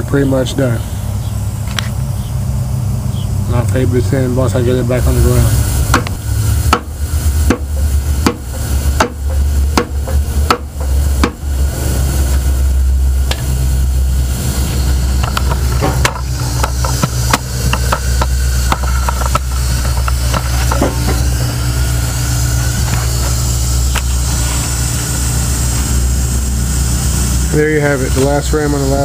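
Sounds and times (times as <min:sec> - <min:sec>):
steady low hum: 0:00.0 - 0:29.0
hammer knocking on metal spinner: 0:06.7 - 0:11.4.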